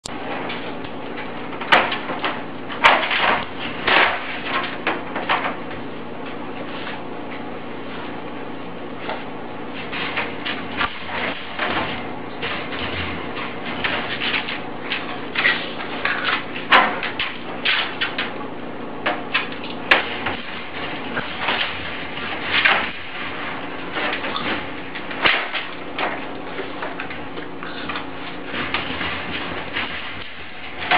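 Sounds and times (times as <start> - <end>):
background hum: 0.0 - 30.9
metal cage door rattling: 19.1 - 30.9.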